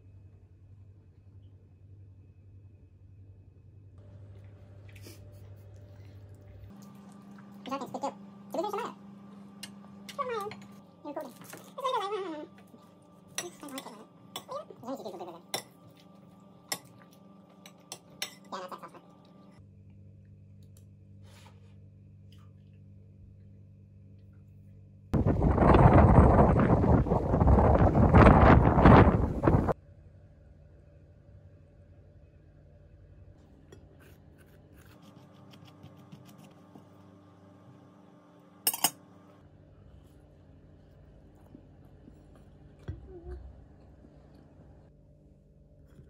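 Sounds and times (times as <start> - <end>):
steady low hum: 0.0 - 46.0
metal spoon clinking on dishes: 17.6 - 18.5, 38.7 - 39.0
knife spreading on a crumpet: 33.8 - 36.9
knife clinking on ceramic plate: 38.7 - 39.0.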